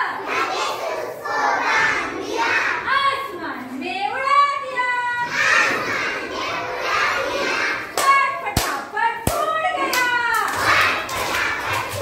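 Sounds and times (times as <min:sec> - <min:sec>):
children chanting a rhyme: 0:00.0 - 0:03.4, 0:04.5 - 0:12.0
hand claps: 0:08.0 - 0:12.0.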